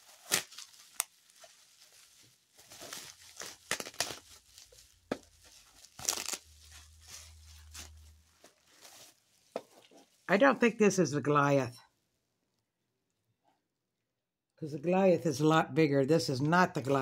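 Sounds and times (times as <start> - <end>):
plastic tearing: 0.0 - 9.4
plastic packaging crinkling: 0.0 - 10.3.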